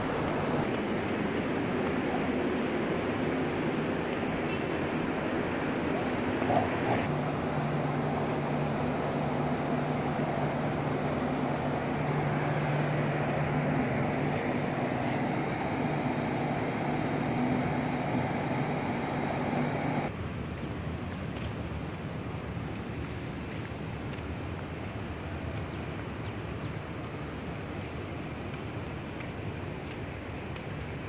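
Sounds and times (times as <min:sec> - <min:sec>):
machine hum: 0:00.0 - 0:20.1
outdoor background noise: 0:00.0 - 0:31.0.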